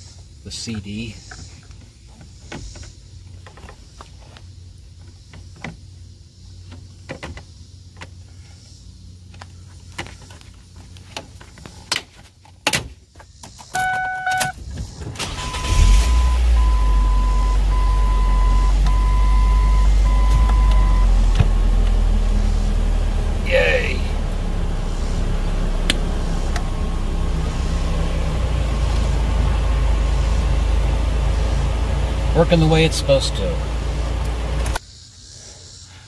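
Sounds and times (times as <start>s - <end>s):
car engine starting and idling: 13.5s - 34.8s
warning chime beeping: 15.3s - 21.2s.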